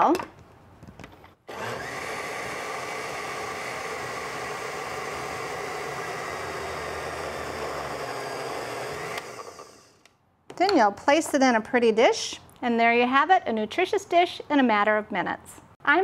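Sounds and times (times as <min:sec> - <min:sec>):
blender motor running: 0:01.5 - 0:10.0.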